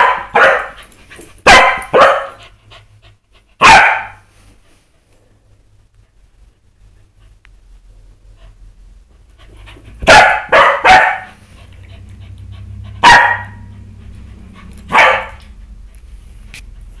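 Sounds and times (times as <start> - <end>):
dog barking: 0.0 - 0.8, 1.5 - 2.4, 3.6 - 4.3, 10.0 - 11.4, 13.0 - 13.7, 14.9 - 15.4.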